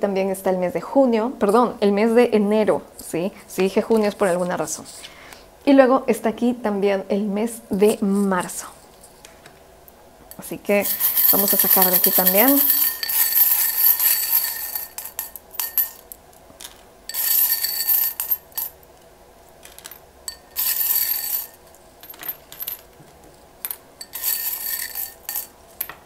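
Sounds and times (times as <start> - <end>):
charms rattling in glass tumbler: 10.7 - 18.8, 19.6 - 22.9, 23.6 - 25.6.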